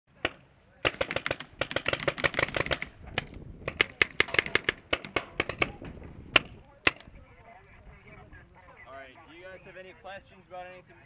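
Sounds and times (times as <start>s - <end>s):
paintball markers firing: 0.2s - 7.1s.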